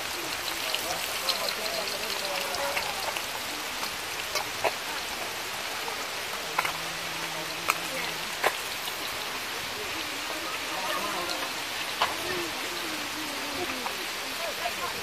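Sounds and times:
fish sizzling in oil: 0:00.0 - 0:15.0.

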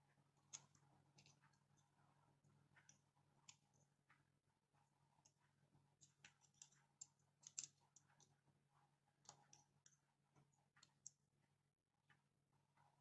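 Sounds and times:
small parts clicking in hand: 0:00.4 - 0:01.9, 0:06.0 - 0:08.4, 0:09.2 - 0:11.2.

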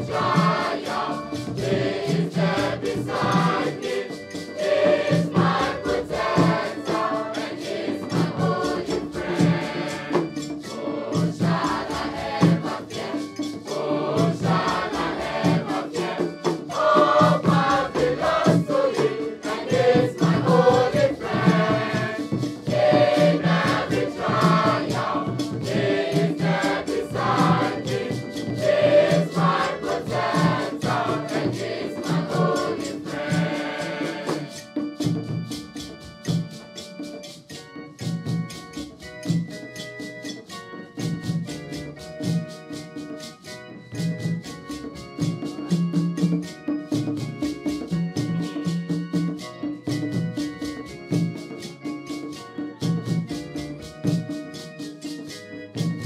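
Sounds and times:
children's choir singing: 0:00.0 - 0:34.9
hand drum beating: 0:00.0 - 0:40.4, 0:44.0 - 0:56.0.

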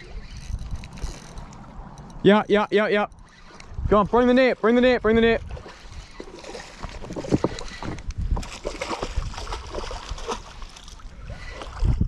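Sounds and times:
small clicks and thumps: 0:06.4 - 0:08.6.

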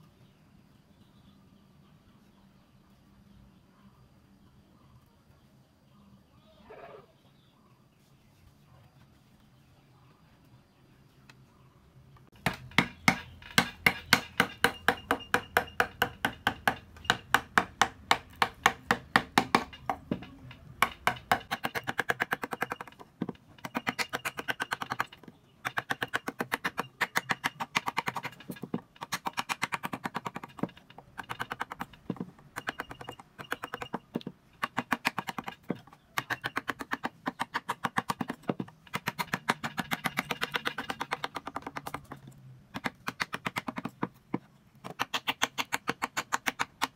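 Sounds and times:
wooden mallet tapping chisel: 0:12.4 - 0:46.9.

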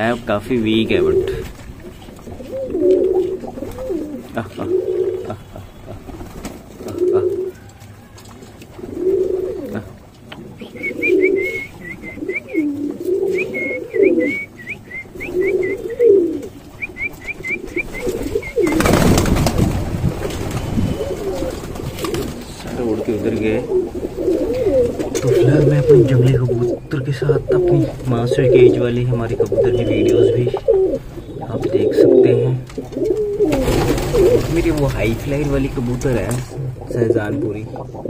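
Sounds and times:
pigeons cooing: 0:00.0 - 0:38.0
wings flapping: 0:05.9 - 0:07.5, 0:15.2 - 0:26.0, 0:32.8 - 0:36.6.

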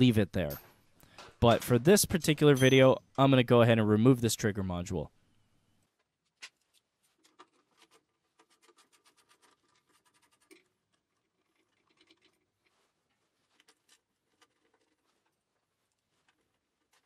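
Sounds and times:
faint scratching: 0:06.5 - 0:17.0.

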